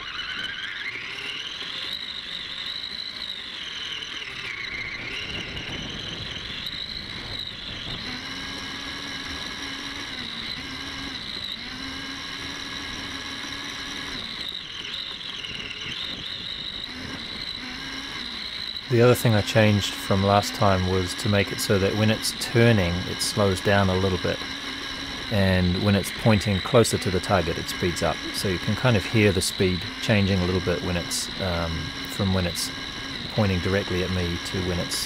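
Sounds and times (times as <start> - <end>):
electric motor and gears whining: 0.0 - 35.0.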